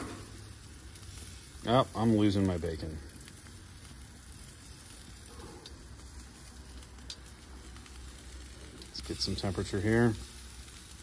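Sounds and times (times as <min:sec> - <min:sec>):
meat sizzling on a grill: 0:00.0 - 0:11.0
small tick: 0:07.0 - 0:07.3.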